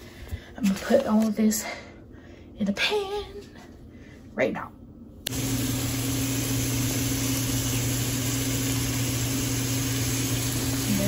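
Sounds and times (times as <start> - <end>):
meat sizzling in a frying pan: 5.4 - 11.0.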